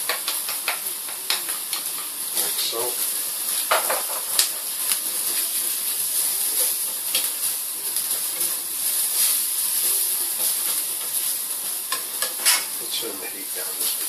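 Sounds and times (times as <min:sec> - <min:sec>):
spatula scraping and tapping pan: 0:00.0 - 0:02.5, 0:03.5 - 0:05.0, 0:10.3 - 0:11.3, 0:11.9 - 0:12.8
onion sizzling in oil: 0:00.0 - 0:14.0.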